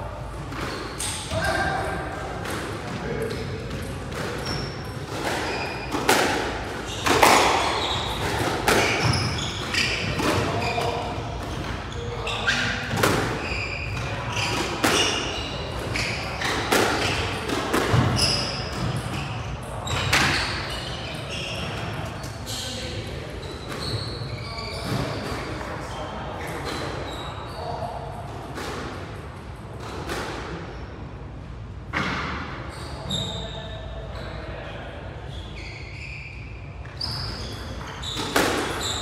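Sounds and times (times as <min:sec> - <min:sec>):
shoes squeaking on court floor: 0:00.4 - 0:01.5, 0:02.5 - 0:28.2, 0:32.7 - 0:34.4, 0:35.3 - 0:39.0
squash ball hitting rackets and walls: 0:00.4 - 0:22.2, 0:23.0 - 0:25.8, 0:28.1 - 0:30.8, 0:31.9 - 0:32.6, 0:36.9 - 0:39.0.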